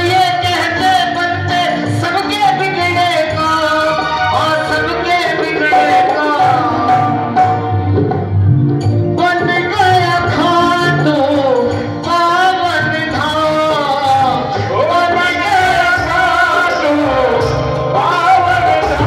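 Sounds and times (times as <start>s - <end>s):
man singing devotional song: 0.0s - 7.4s, 9.2s - 19.0s
hand drum: 5.3s - 11.7s.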